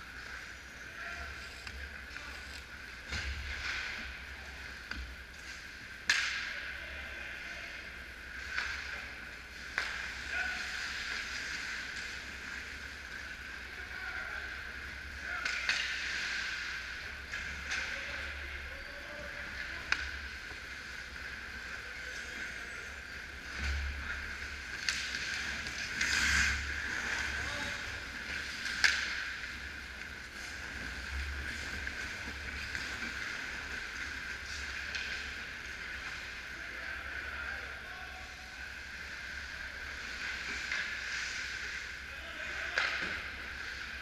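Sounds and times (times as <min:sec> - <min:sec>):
stick and puck clacks: 0:04.8 - 0:06.5, 0:09.6 - 0:12.3, 0:15.3 - 0:18.1, 0:19.6 - 0:20.7, 0:23.7 - 0:36.3, 0:42.7 - 0:43.3
skates scraping on ice: 0:19.2 - 0:36.5.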